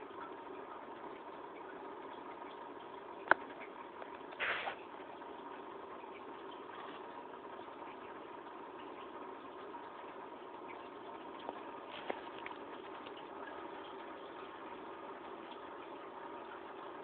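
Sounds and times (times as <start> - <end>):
mechanical hum with hiss: 0.0 - 17.0.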